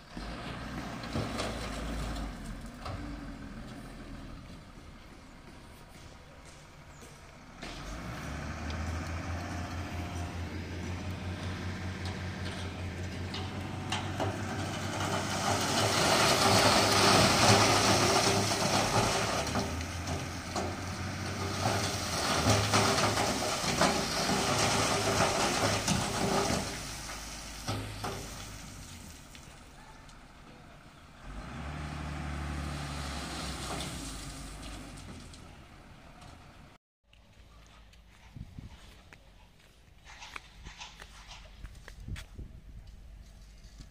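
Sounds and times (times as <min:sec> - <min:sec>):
truck engine humming: 0:00.0 - 0:36.8
stones sliding from truck bed: 0:00.3 - 0:03.2, 0:07.6 - 0:29.6, 0:32.6 - 0:35.6.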